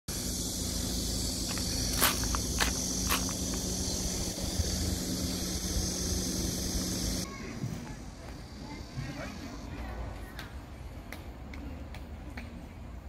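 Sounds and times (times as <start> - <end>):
high drone of insects: 0.1 - 10.2
footsteps crunching on gravel: 1.4 - 3.7.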